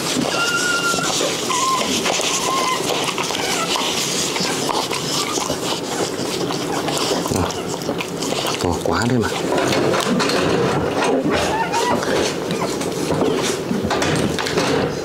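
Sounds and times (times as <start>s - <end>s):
puppy squeaking: 0.2s - 8.6s, 11.0s - 13.2s.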